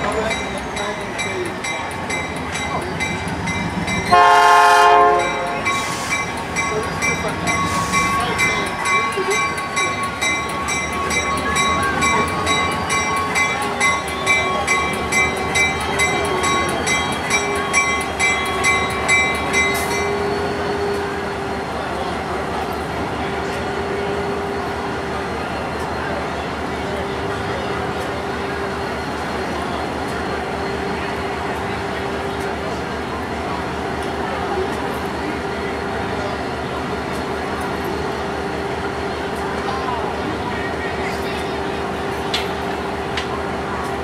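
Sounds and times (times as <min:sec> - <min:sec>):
locomotive bell ringing: 0:00.0 - 0:44.0
train rumbling: 0:00.0 - 0:44.0
locomotive horn blast: 0:04.1 - 0:06.1.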